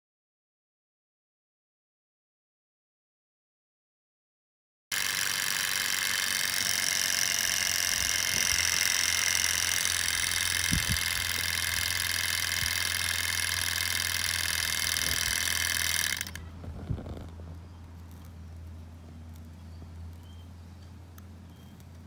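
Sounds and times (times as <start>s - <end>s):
model engine whirring: 4.9s - 17.3s.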